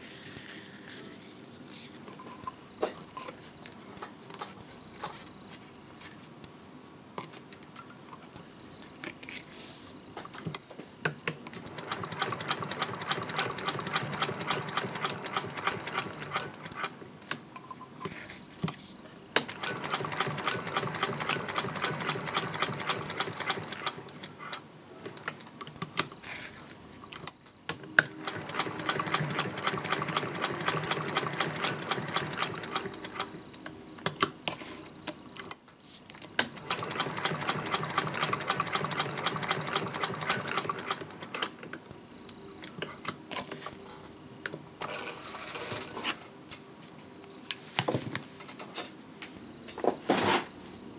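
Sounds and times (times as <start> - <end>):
sewing machine clicking and whirring: 11.4 - 17.0, 19.4 - 25.4, 28.1 - 33.4, 36.4 - 41.6.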